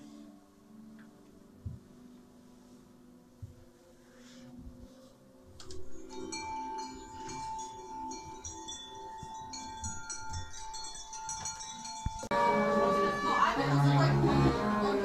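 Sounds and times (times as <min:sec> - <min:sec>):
low sustained tones: 0:00.0 - 0:15.0
high chime-like tinkling tones: 0:05.6 - 0:14.2
steady held tone: 0:05.6 - 0:15.0.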